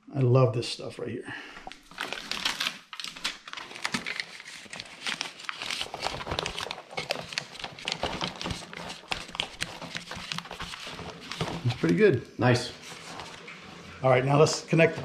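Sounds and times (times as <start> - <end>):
foil duct crinkling: 1.7 - 13.6.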